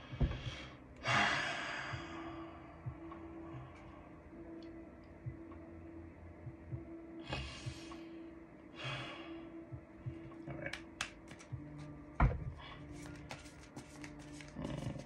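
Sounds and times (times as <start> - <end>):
card clicks and taps: 10.7 - 11.9, 13.0 - 14.6
cards shuffling swishes: 10.8 - 11.9, 12.9 - 15.0.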